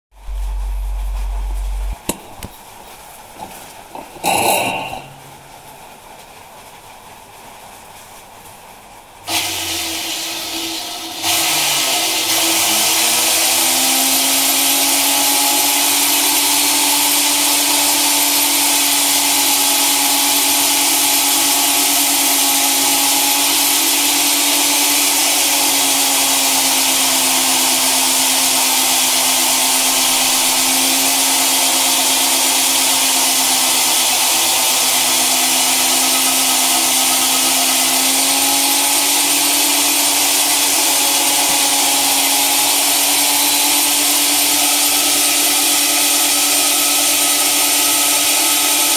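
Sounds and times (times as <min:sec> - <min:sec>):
electric drill motor hum: 0:09.3 - 0:48.9.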